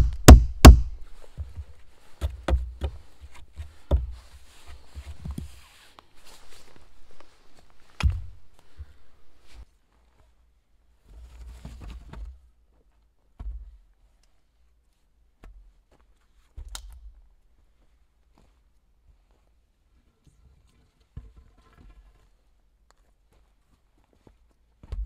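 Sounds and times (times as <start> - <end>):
axe striking wood: 0.0 - 1.0, 3.9 - 4.2, 8.0 - 8.4
wooden poles knocking: 0.0 - 4.2, 8.0 - 8.9
rustling: 0.8 - 13.1
footsteps on forest floor: 3.6 - 9.7.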